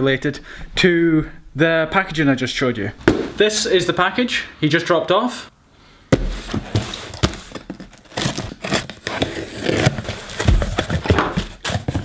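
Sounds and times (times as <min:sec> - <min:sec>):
knife slitting packing tape: 0:07.0 - 0:12.0.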